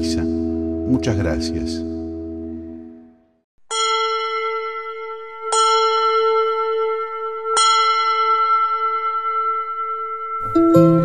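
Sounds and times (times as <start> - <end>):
bell ringing: 3.7 - 11.0.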